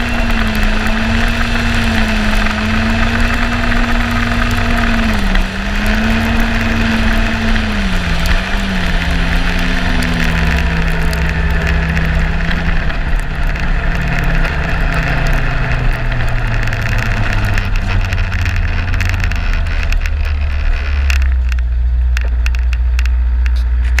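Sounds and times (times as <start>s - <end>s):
snowmobile engine running: 0.0s - 24.0s.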